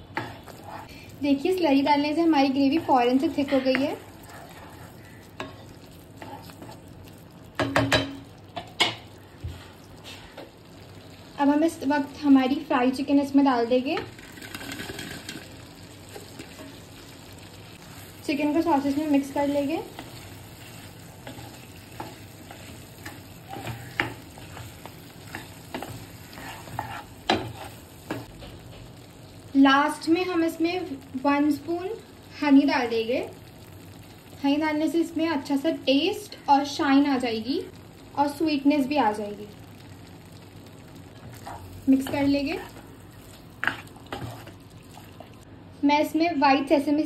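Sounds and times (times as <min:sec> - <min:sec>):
low sizzle: 0:00.0 - 0:47.0
spatula scraping pan: 0:00.2 - 0:00.9, 0:02.8 - 0:06.8, 0:19.8 - 0:28.3, 0:43.6 - 0:44.6
wooden spatula knocking on pan: 0:07.6 - 0:08.2.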